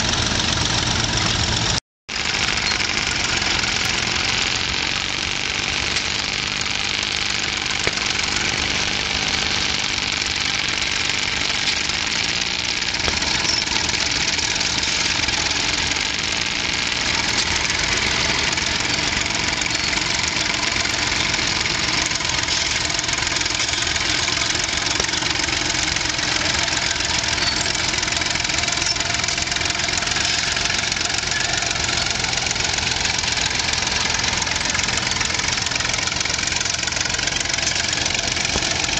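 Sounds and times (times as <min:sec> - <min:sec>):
tractor and scraper engines running: 0:00.0 - 0:38.9.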